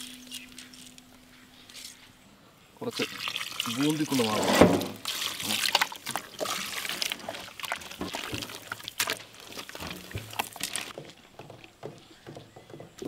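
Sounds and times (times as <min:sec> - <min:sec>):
water pouring: 0:02.8 - 0:11.0.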